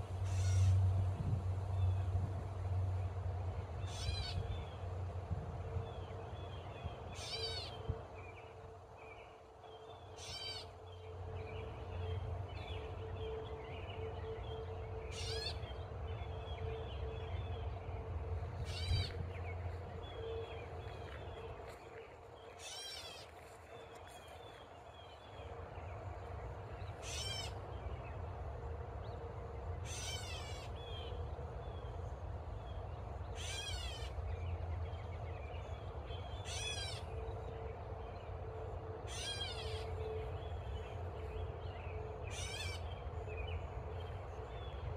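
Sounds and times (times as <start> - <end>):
catbird mewing: 27.0 - 27.6.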